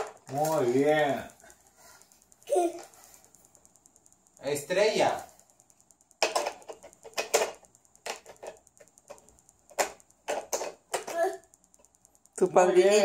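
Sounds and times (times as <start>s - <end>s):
plastic blocks clacking: 6.2s - 11.3s.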